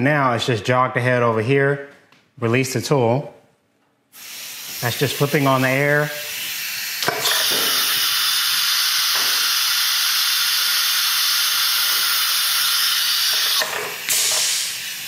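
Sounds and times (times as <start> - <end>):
compressed air hissing: 4.1 - 15.0.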